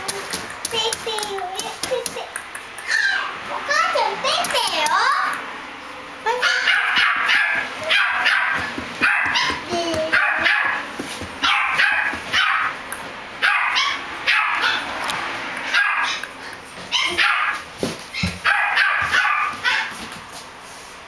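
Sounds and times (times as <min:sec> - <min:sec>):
small dog yapping: 0:06.4 - 0:10.8, 0:11.4 - 0:12.8, 0:13.4 - 0:14.9, 0:15.7 - 0:16.3, 0:16.9 - 0:19.9.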